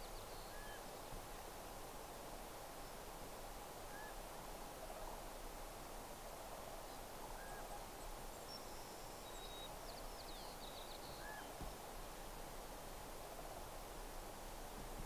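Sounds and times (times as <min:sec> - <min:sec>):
distant bird calls: 0:00.0 - 0:01.0, 0:03.9 - 0:04.2, 0:07.4 - 0:12.3
steady soft hiss: 0:00.0 - 0:15.0.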